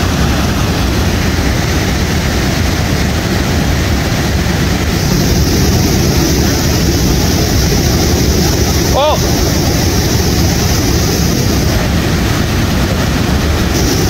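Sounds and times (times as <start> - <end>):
rapids rushing over rocks: 0.0 - 14.0
bright hiss: 4.9 - 12.1, 13.6 - 14.0.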